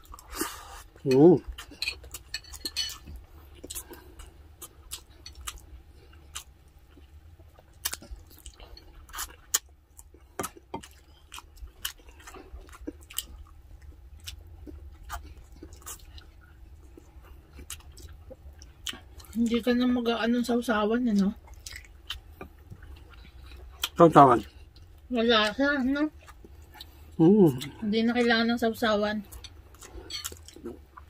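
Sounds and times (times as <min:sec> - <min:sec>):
close-up chewing: 0:00.0 - 0:19.7, 0:21.0 - 0:31.0.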